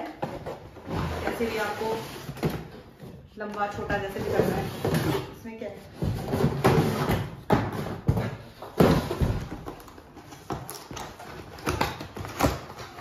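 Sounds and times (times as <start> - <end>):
cardboard boxes thumping and rustling: 5.9 - 13.0.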